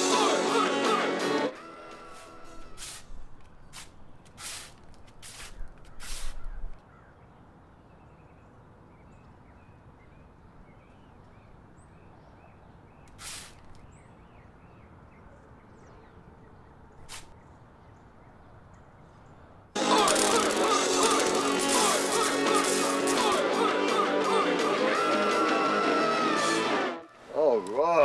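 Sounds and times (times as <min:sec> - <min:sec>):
background hiss: 0:02.0 - 0:06.4, 0:13.1 - 0:13.7
short swishing noises: 0:02.1 - 0:06.4, 0:17.1 - 0:17.4
birds chirping: 0:05.5 - 0:19.7.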